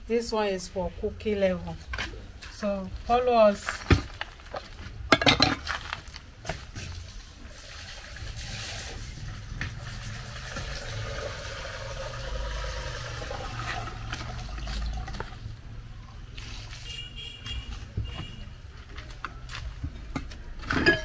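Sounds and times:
water running into a container: 0:07.1 - 0:15.4.

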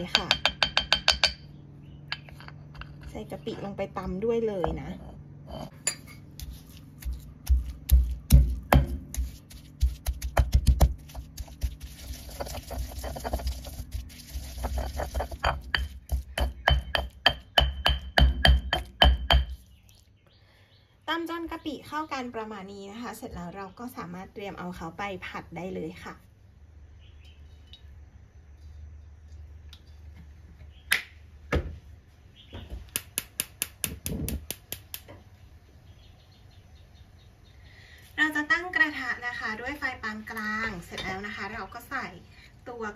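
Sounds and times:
pestle pounding in stone mortar: 0:00.0 - 0:01.5, 0:06.3 - 0:19.7.

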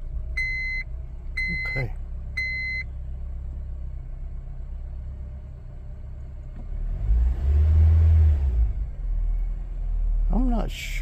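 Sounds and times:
car engine idling: 0:00.0 - 0:06.9, 0:08.7 - 0:11.0
car engine revving: 0:06.4 - 0:10.4.

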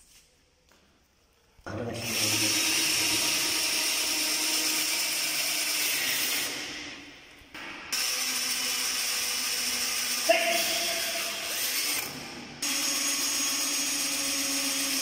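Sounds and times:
power drill drilling into wall: 0:02.0 - 0:06.6, 0:07.9 - 0:15.0.

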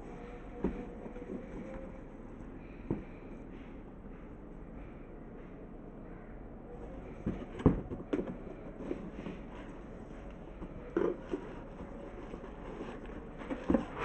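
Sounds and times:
knocks and rustles of shoebox: 0:07.2 - 0:09.8, 0:10.6 - 0:14.0.

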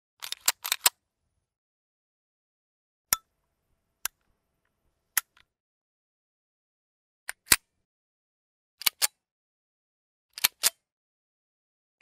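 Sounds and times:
metallic gun clicks and rattles: 0:00.2 - 0:00.9.

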